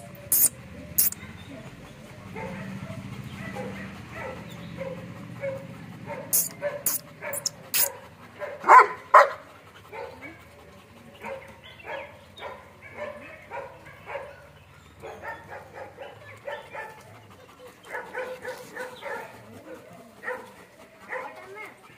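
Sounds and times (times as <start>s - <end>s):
dogs barking: 0.0s - 21.9s.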